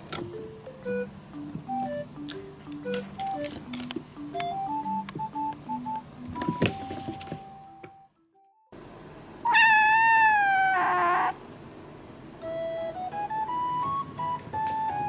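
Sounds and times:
light background music: 0.0s - 8.7s, 12.4s - 15.0s
kitten meowing: 9.4s - 11.4s.

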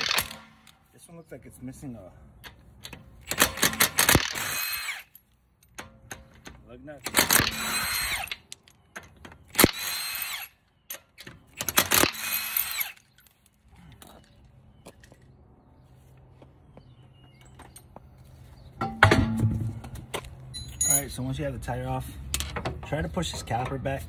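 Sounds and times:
impact wrench bursts: 0.0s - 0.7s, 3.2s - 5.2s, 7.0s - 8.5s, 9.5s - 10.6s, 11.6s - 13.1s.

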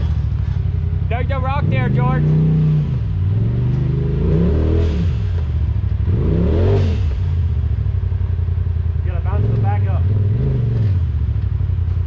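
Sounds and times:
utility vehicle engine revving: 0.0s - 12.0s.

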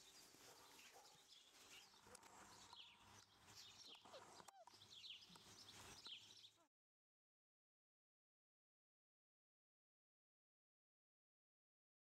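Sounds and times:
animal chirps and squeaks: 3.8s - 5.4s.

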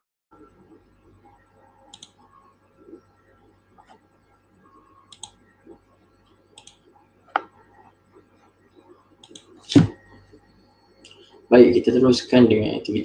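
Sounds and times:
computer mouse clicks: 1.9s - 2.2s, 5.1s - 5.4s, 6.6s - 7.6s, 9.2s - 9.6s.

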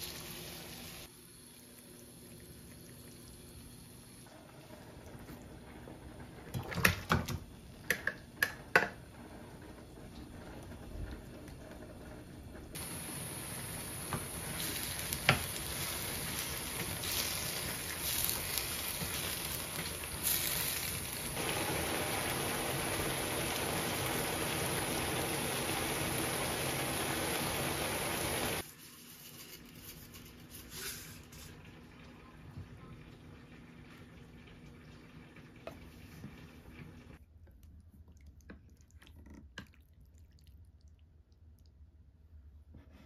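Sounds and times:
sauce sizzling in a frying pan: 0.0s - 4.3s, 12.8s - 28.6s.

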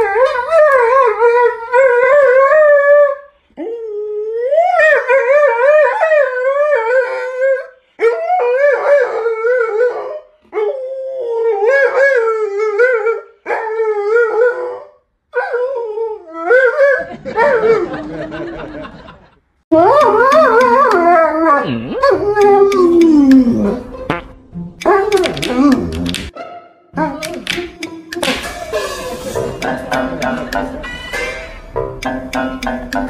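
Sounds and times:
dog howling: 19.8s - 23.9s.

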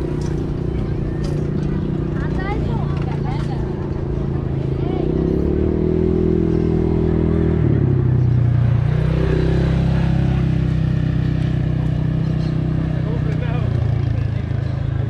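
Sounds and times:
vehicle engine running: 0.0s - 15.0s.

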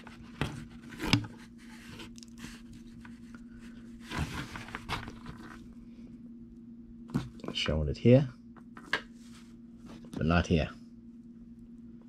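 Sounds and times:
cable handling rustle: 0.0s - 5.7s
low steady hum: 0.0s - 12.0s.

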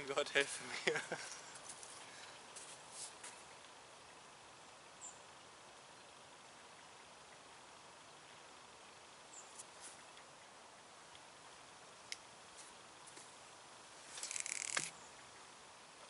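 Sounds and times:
fishing reel whirring: 14.2s - 14.9s
rapid reel clicking: 14.2s - 14.9s.

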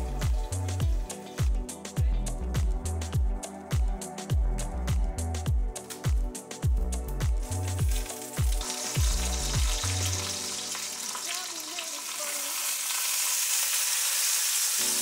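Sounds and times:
music with a steady beat: 0.0s - 10.6s
hot oil sizzling in a pot: 7.8s - 15.0s
rice being poured: 7.9s - 15.0s.

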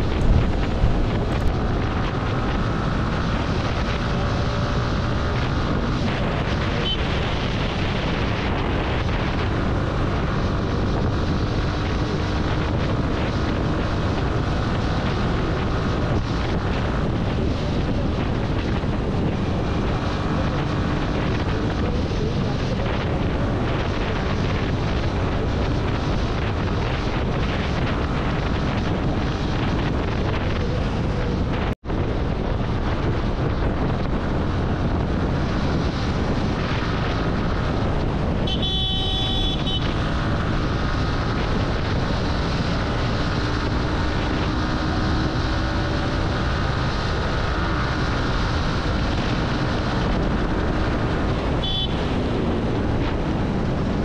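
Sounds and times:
motorcycle wind and road rush: 0.0s - 54.0s
vehicle horn honking: 38.4s - 40.0s, 51.6s - 52.1s.

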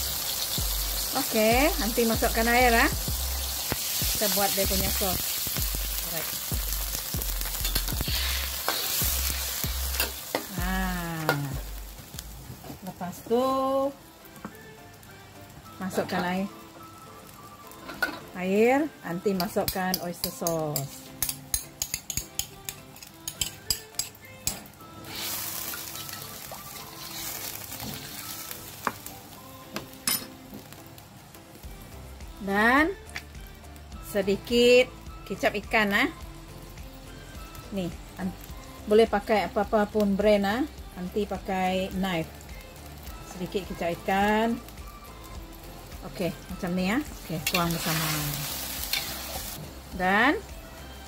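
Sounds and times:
sauce sizzling in a wok: 0.0s - 51.0s
metal spatula stirring: 7.5s - 10.5s, 19.4s - 24.2s, 25.1s - 28.2s, 47.3s - 49.6s
metal ladle scraping a wok: 7.6s - 10.5s, 47.4s - 49.6s.

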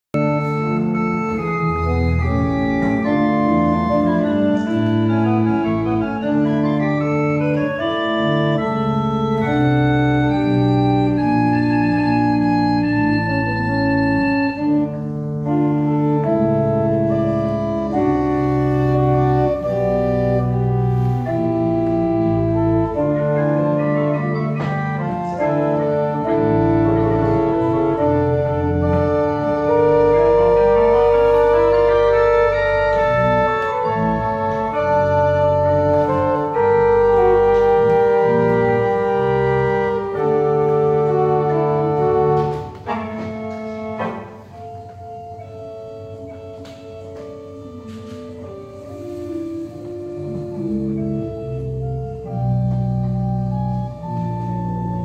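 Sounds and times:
pipe organ chords: 0.1s - 55.0s.

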